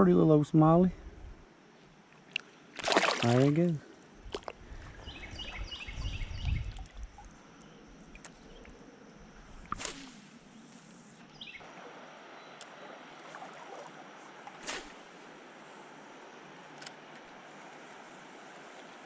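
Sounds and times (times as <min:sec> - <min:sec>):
river current rushing: 0:02.8 - 0:03.6, 0:11.6 - 0:19.0.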